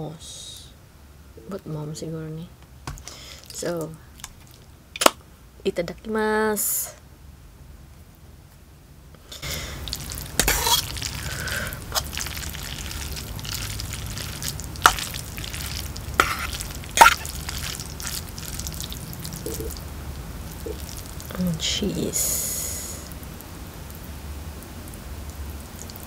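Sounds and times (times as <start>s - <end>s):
noodles squelching: 9.3s - 21.4s.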